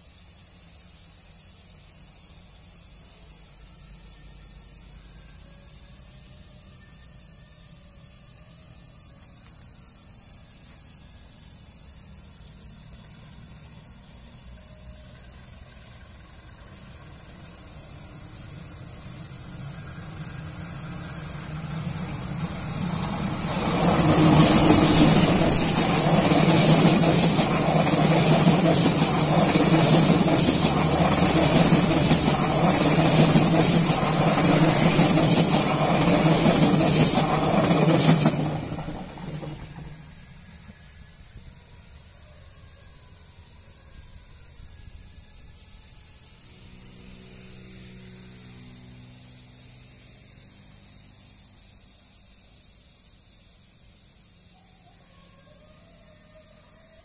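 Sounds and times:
diesel locomotive engine: 0:00.0 - 0:57.0
thin high whine: 0:00.0 - 0:57.0
train wheels on rails: 0:08.8 - 0:41.6.

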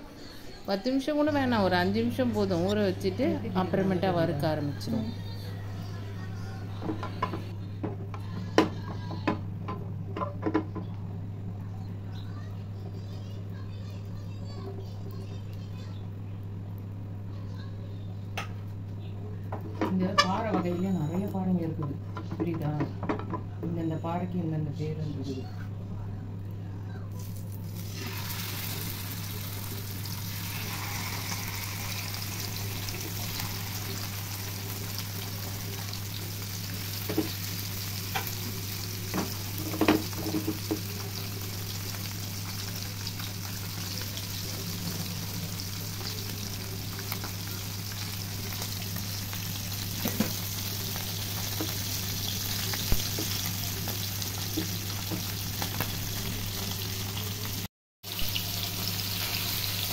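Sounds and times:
fish sizzling in hot oil: 0:27.2 - 0:59.9.

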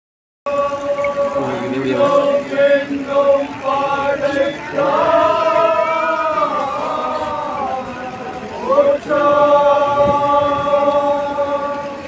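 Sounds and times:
group chanting: 0:00.5 - 0:12.0.

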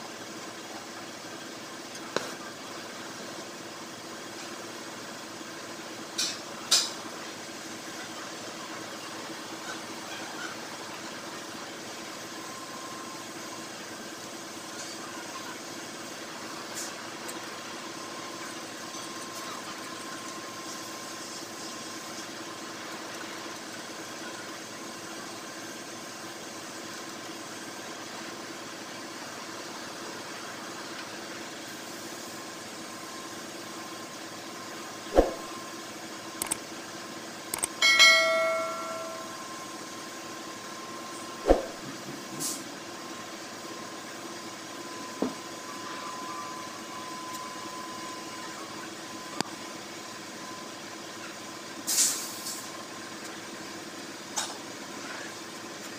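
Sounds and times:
sharp click: 0:37.5 - 0:37.8
bell-like chime: 0:37.8 - 0:39.6.

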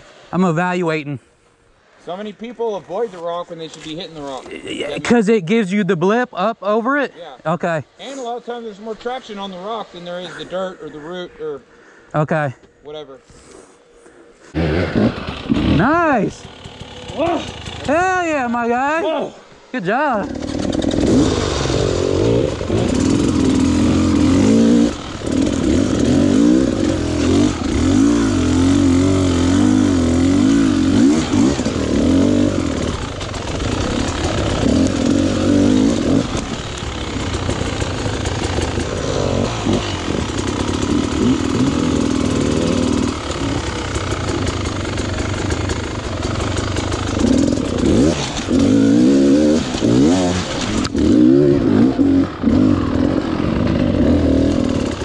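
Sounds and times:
dirt bike engine revving: 0:14.5 - 0:19.1, 0:19.8 - 0:55.0.

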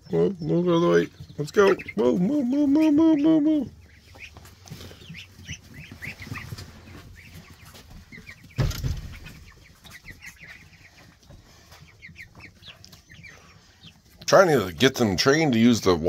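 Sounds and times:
chicks and ducklings peeping: 0:00.0 - 0:16.0
single thump: 0:08.6 - 0:09.4.

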